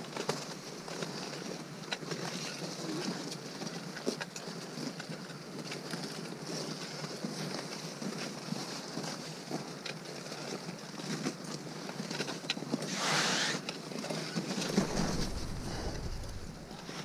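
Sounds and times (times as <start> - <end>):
trekking poles clicking: 14.6 - 17.0
boots crunching on snow: 14.7 - 17.0.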